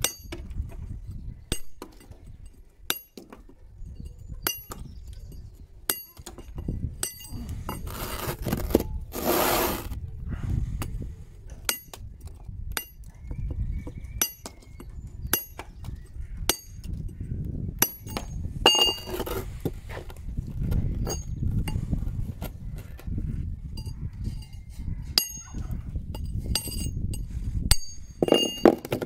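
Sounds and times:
hammer striking steel chisel: 5.9 - 7.4, 11.6 - 12.0, 14.2 - 14.6, 16.5 - 17.0, 17.8 - 19.2, 23.8 - 25.6, 26.2 - 28.9
scraping noise: 7.9 - 10.0.

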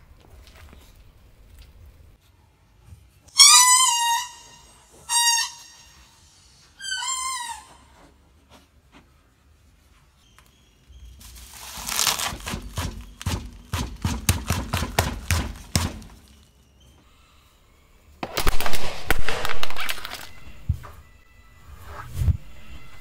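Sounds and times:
car tyre crushing radish: 11.3 - 16.6.

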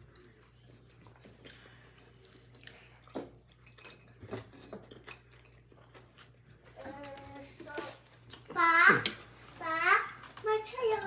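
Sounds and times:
chewing: 0.0 - 7.2.

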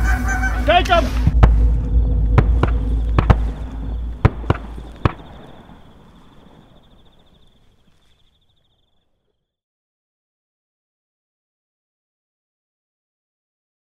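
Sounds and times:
shotgun shots: 1.2 - 7.4.

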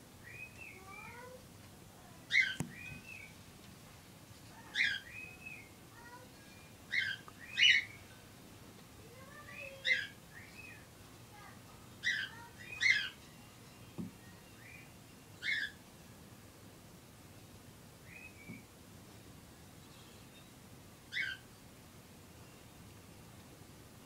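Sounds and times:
high chirping calls: 0.2 - 1.3, 2.3 - 3.4, 4.6 - 8.1, 9.2 - 10.9, 12.0 - 15.8, 18.0 - 18.7, 19.8 - 21.5.

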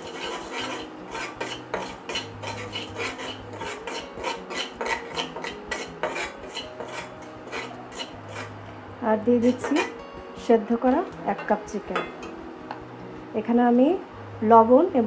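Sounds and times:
metal spatula scraping wok: 0.0 - 8.6, 9.3 - 10.0.

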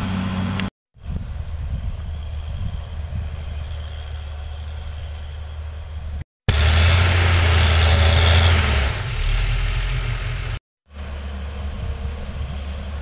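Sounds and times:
tractor diesel engine drone: 3.6 - 13.0.

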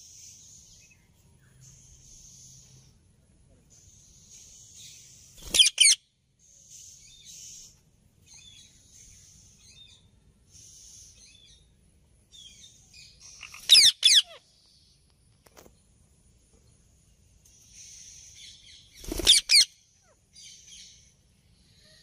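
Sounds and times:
parakeets chirping and chattering: 3.7 - 14.5, 17.5 - 21.2
parakeets screeching: 4.8 - 6.0, 13.1 - 14.4, 18.9 - 20.2.

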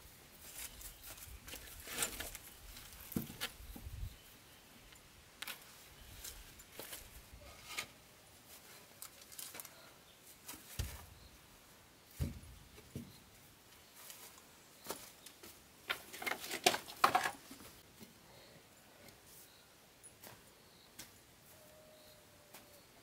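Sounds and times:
dull thumps: 12.2 - 13.2.

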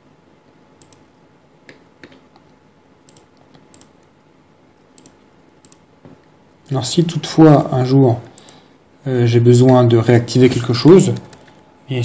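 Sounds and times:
mouse and keyboard clicks: 3.1 - 4.0.

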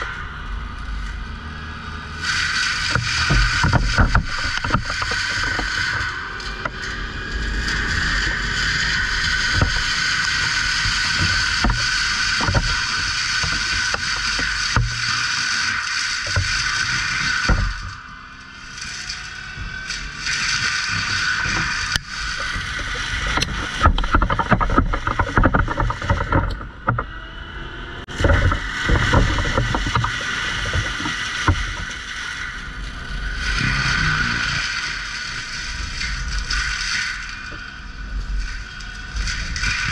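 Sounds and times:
diesel engine running: 0.0 - 15.2, 16.2 - 36.0
high whine: 0.0 - 39.9
knocking and clatter: 2.2 - 18.0, 19.4 - 27.2, 28.0 - 33.6.

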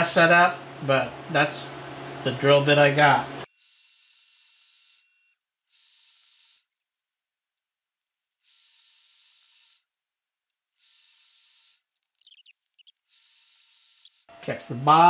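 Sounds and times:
drill spindle high whine: 3.4 - 10.0, 10.7 - 14.3.

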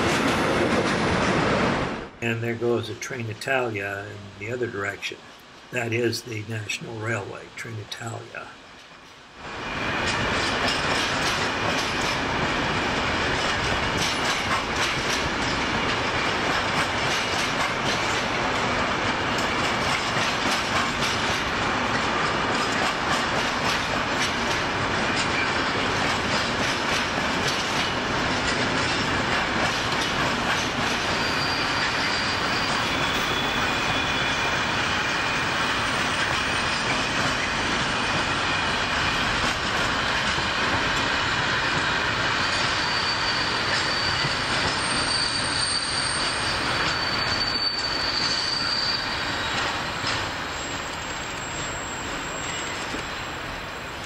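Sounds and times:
freight train wheels clattering: 10.0 - 53.1
high wheel squeal: 31.0 - 35.8, 42.3 - 53.4.

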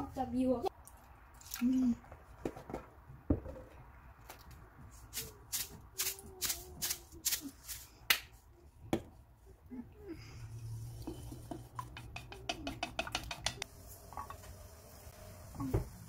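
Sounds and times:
chopsticks beating eggs in metal bowl: 11.5 - 13.6.

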